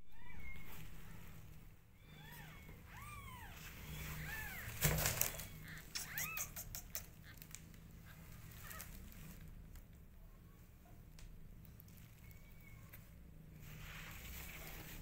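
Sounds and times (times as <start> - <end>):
kittens mewing: 2.0 - 9.4.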